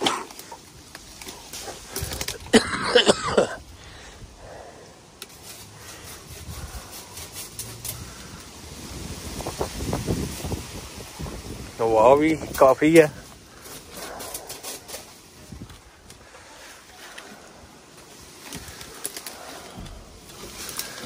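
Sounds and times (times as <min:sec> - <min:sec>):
person coughing: 0:00.0 - 0:00.3, 0:02.5 - 0:03.6
rustling leaves and branches: 0:00.0 - 0:21.0.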